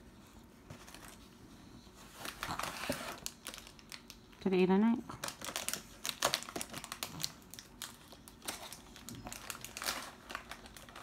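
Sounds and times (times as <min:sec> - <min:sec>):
packaging crinkling: 0:02.1 - 0:04.4, 0:05.1 - 0:11.0.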